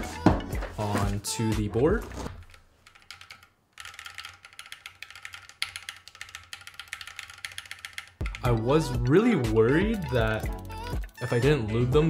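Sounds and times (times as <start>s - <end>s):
keyboard keys clacking: 2.4s - 11.2s.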